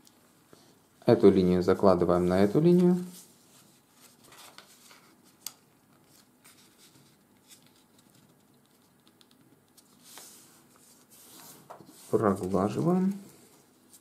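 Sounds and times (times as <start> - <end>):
paper rustling and scraping: 2.2 - 8.4, 9.8 - 14.0
paper swishes: 9.8 - 14.0.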